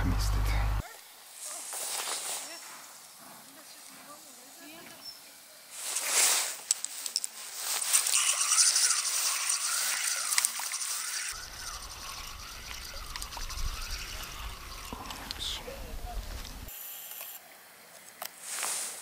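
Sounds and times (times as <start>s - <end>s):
water splashing and trickling: 7.8s - 16.7s
faint rising and falling whine: 8.1s - 16.7s.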